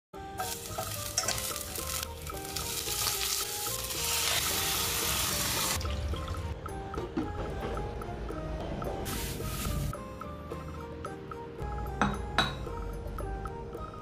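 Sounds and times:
light background music: 0.2 - 14.0
food sizzling in a pot: 0.3 - 5.8, 9.1 - 10.0.

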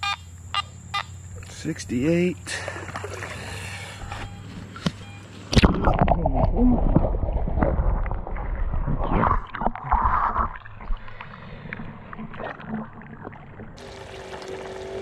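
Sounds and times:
river water sloshing and gurgling: 2.6 - 4.0, 5.5 - 15.0.

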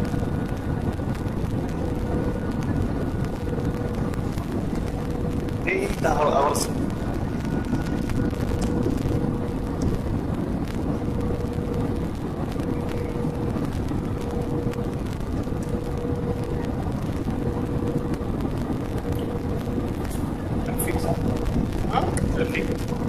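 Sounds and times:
constant hum tone: 0.0 - 23.0
jet engine cabin rumble: 0.0 - 23.0.

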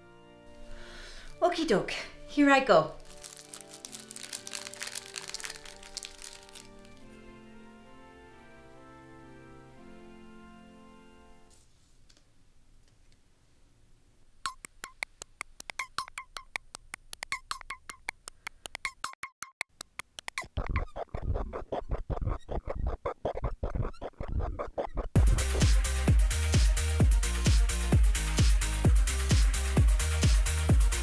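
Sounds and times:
plucky synthesizer rhythm: 14.5 - 26.2
electronic dance beat: 20.3 - 31.0.

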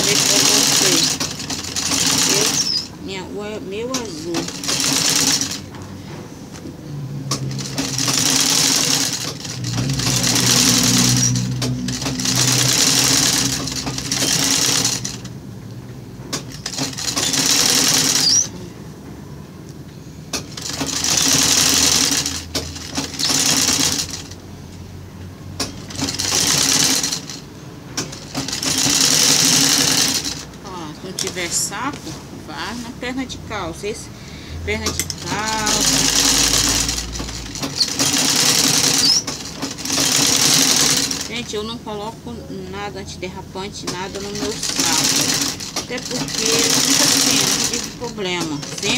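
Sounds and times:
sewing machine running: 0.0 - 3.0, 3.9 - 5.8, 7.2 - 15.4, 16.4 - 18.6, 20.4 - 24.4, 25.6 - 31.4, 34.8 - 41.4, 44.0 - 48.9.

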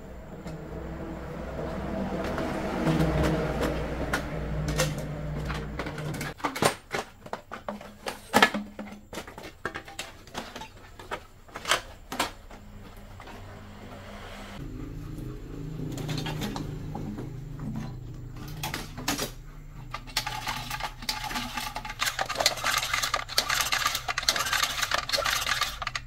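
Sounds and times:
engine running: 0.0 - 6.4, 12.6 - 26.0
sharp knocks and clatter: 2.2 - 12.9.

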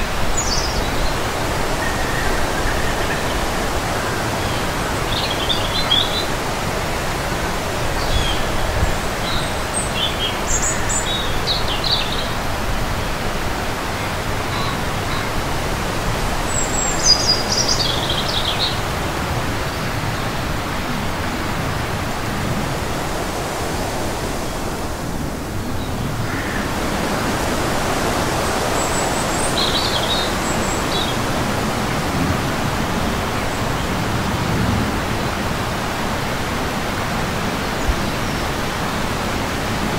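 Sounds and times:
small birds chirping: 0.0 - 6.4
wind buffeting microphone: 0.0 - 11.4.

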